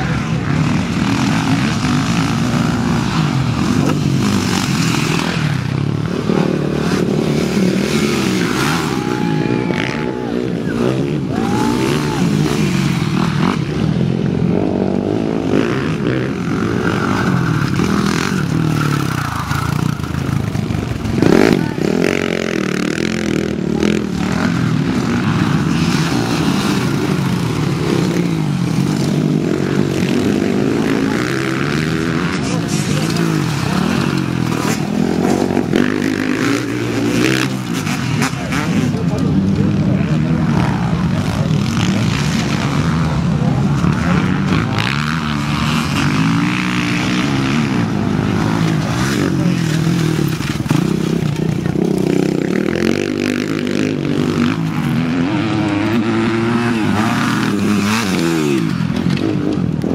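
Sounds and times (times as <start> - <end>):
motorcycle engines revving: 0.0 - 59.9.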